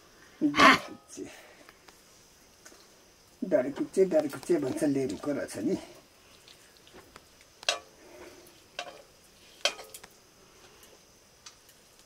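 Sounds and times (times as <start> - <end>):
metal utensils clinking on cookware: 7.7 - 7.9, 8.8 - 10.0.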